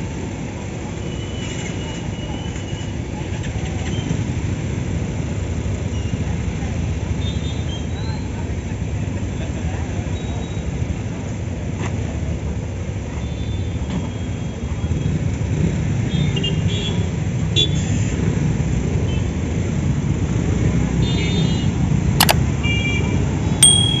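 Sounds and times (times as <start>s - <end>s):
road traffic rumble: 0.0s - 24.0s
sharp click: 22.2s - 22.4s.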